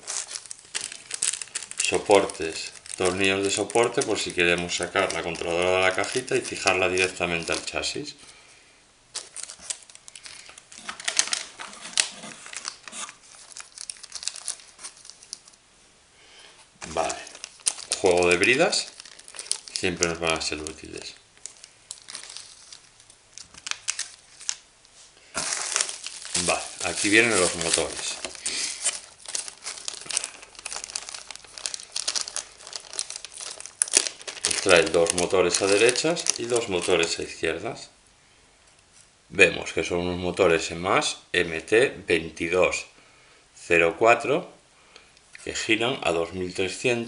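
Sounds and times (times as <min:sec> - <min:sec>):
plastic bags crinkling: 0:00.0 - 0:08.0, 0:09.1 - 0:15.6, 0:16.8 - 0:37.4.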